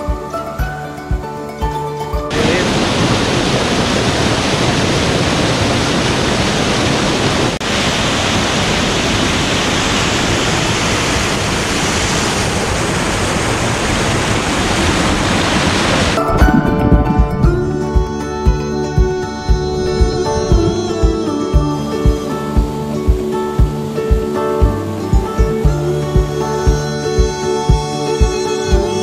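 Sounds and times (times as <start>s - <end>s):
waterfall pouring into pool: 2.3s - 16.2s.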